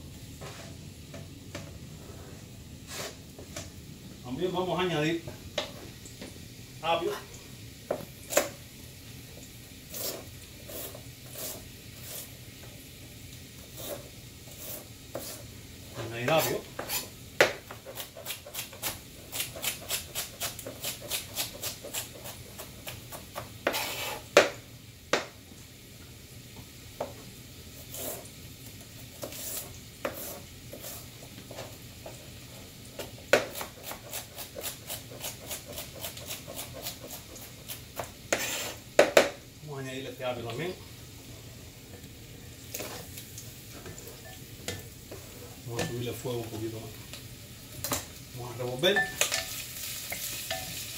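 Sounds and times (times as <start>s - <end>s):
knife chopping on cutting board: 16.4s - 25.3s, 29.2s - 31.0s, 33.0s - 39.4s.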